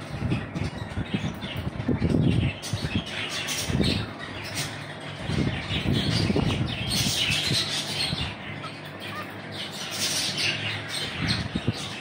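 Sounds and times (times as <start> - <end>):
budgerigars chattering: 0.1 - 12.0.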